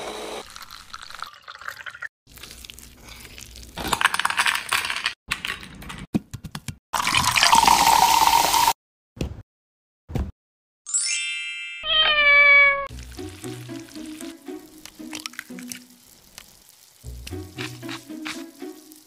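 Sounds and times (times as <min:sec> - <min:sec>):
juice trickling: 0:00.4 - 0:03.8, 0:07.0 - 0:08.7, 0:12.9 - 0:19.0
ice cubes clattering in bowl: 0:03.8 - 0:05.2
fizzy drink pouring and hissing: 0:07.0 - 0:08.8, 0:12.9 - 0:19.0.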